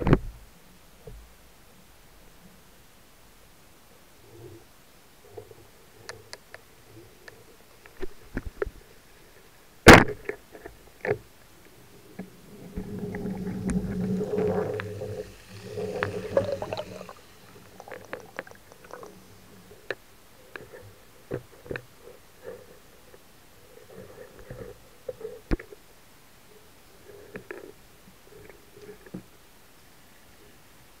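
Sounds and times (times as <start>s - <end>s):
steady hum: 11.5s - 20.4s
low underwater rumbling: 11.7s - 19.8s.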